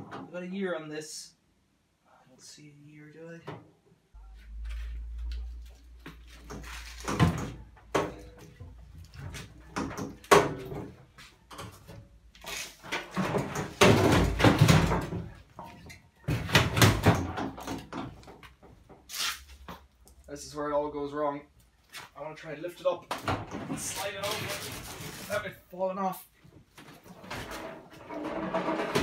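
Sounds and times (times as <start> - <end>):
washing machine scraping and bumping: 27.2 - 29.0.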